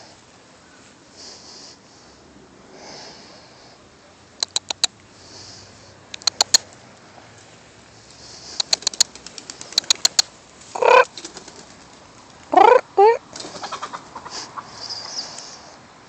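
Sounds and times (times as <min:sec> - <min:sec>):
chicken wings flapping: 0:08.6 - 0:12.4, 0:13.3 - 0:14.0
chicken squawking: 0:09.7 - 0:11.1, 0:12.5 - 0:15.1.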